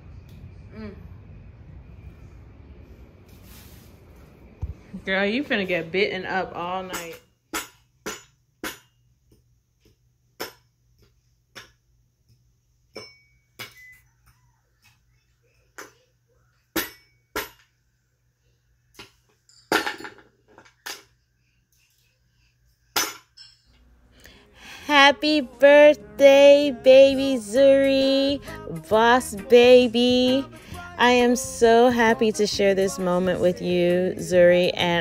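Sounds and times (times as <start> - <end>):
faint low hum: 0.0 - 7.5.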